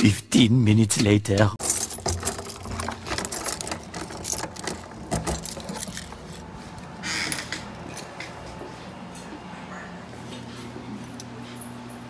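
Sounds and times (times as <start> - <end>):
keys jangling: 1.6 - 7.0.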